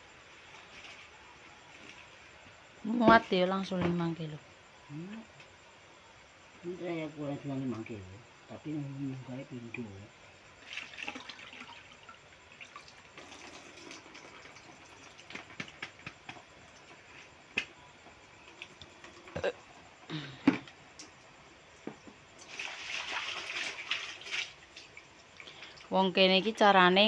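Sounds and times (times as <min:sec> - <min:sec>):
water splashes: 0:10.6 - 0:15.8, 0:22.4 - 0:25.9
water pouring out: 0:10.6 - 0:15.9, 0:22.4 - 0:25.9
water dripping and trickling: 0:10.6 - 0:17.3, 0:18.3 - 0:19.4, 0:20.7 - 0:26.0.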